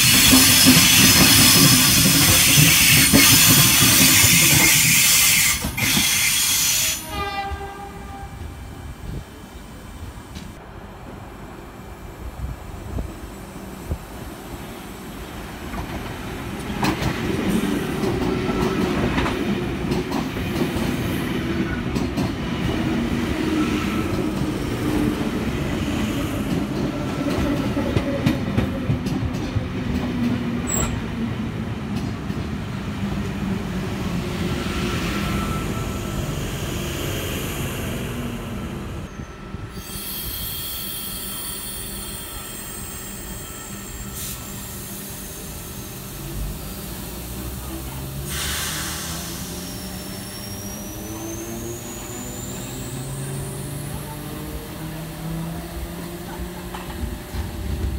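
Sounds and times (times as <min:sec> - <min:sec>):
train rumbling past: 0:00.0 - 0:57.9
faint thin squeal: 0:34.6 - 0:36.4, 0:39.0 - 0:44.8
high hiss: 0:39.8 - 0:53.9.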